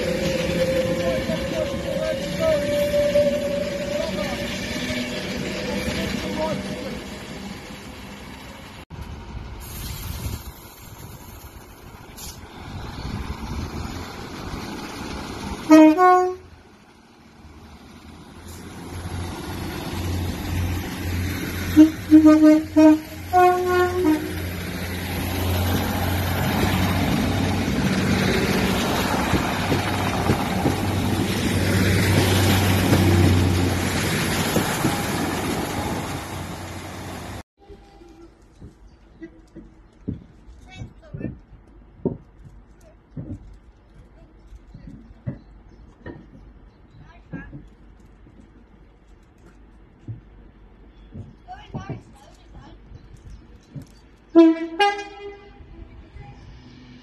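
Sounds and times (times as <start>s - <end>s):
train two-tone horn blasts: 0.0s - 4.8s, 15.7s - 16.5s, 21.7s - 24.4s, 37.6s - 38.4s, 54.3s - 55.8s
diesel train rumbling past: 0.0s - 43.8s, 44.6s - 57.0s.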